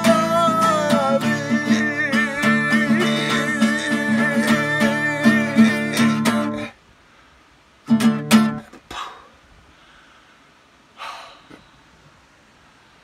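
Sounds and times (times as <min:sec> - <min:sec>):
acoustic guitar strumming: 0:00.0 - 0:06.8, 0:07.9 - 0:08.7.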